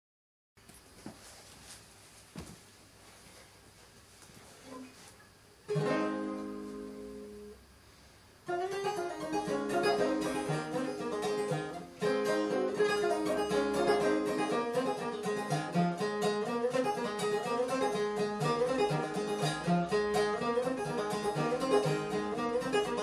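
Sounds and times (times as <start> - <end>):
banjo playing: 5.7 - 7.6, 8.4 - 23.0.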